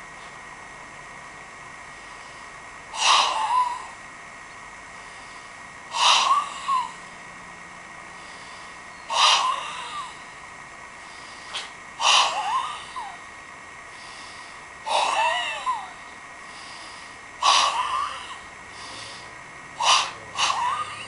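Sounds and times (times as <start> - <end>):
forceful exhalations with cries: 14.0 - 21.0.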